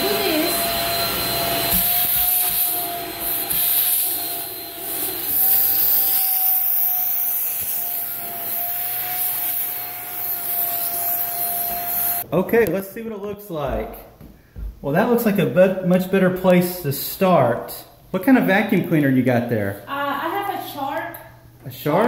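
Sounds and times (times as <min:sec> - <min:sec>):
handheld vacuum motor whine: 0:00.0 - 0:12.2.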